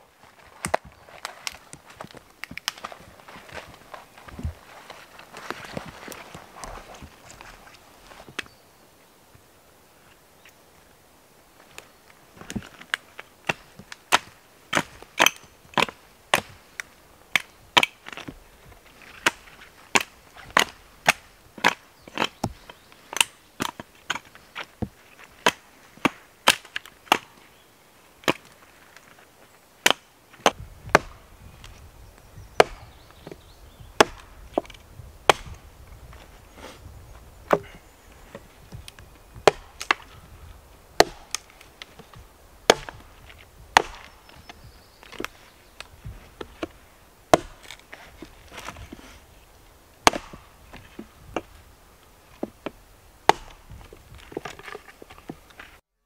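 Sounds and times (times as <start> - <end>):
hatchet chopping wood: 13.5 - 16.6, 24.8 - 27.4, 29.8 - 31.3, 32.6 - 33.4, 34.0 - 35.6, 37.5 - 38.8, 39.4 - 40.2, 41.0 - 45.3, 46.0 - 49.0, 50.0 - 51.5, 52.4 - 55.4.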